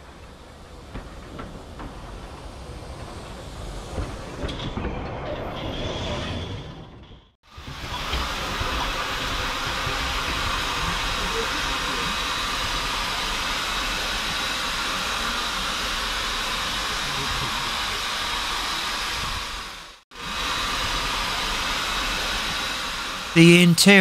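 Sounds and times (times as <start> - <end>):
steam hissing: 7.5 - 23.4.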